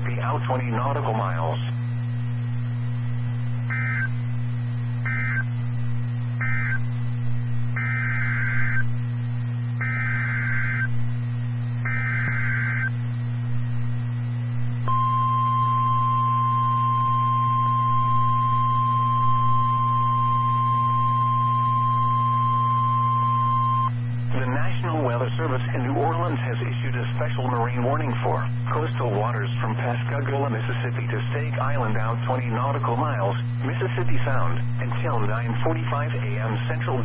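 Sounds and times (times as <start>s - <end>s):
low steady hum: 0.0s - 37.0s
buzzy data bursts: 3.5s - 30.2s
steady warning alarm tone: 3.6s - 4.2s, 5.0s - 5.6s, 6.2s - 11.0s, 11.6s - 13.1s, 14.8s - 26.7s.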